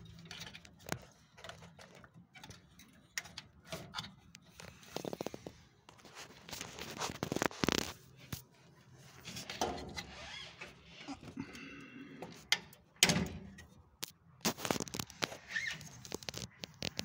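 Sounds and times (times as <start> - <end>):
hands clicking and scraping: 14.0 - 17.0.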